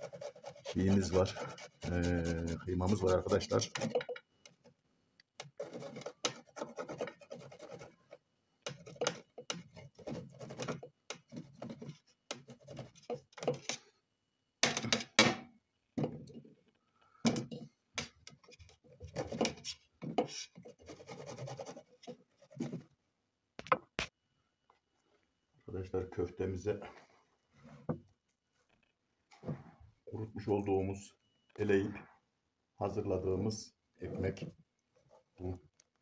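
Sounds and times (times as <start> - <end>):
grating on metal grater: 0.0 - 4.0, 5.4 - 8.0.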